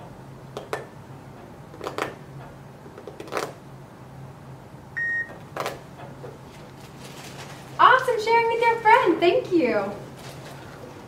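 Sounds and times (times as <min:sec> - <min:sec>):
phone timer beep: 0:05.0 - 0:05.4.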